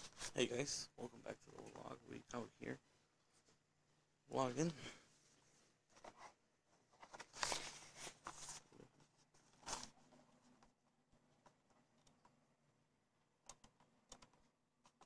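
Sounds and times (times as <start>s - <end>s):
soft handling rustles: 4.5s - 10.8s.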